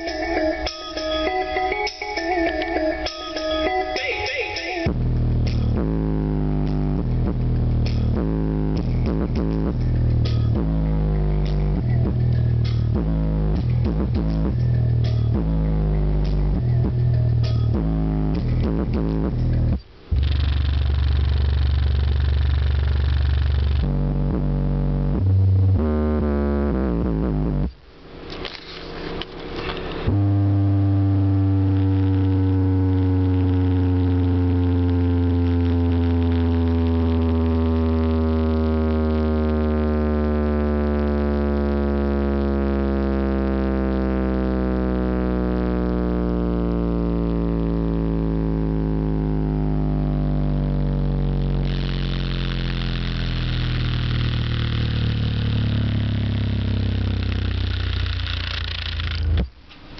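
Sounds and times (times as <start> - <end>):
electronic bass drone: 0.0 - 59.9.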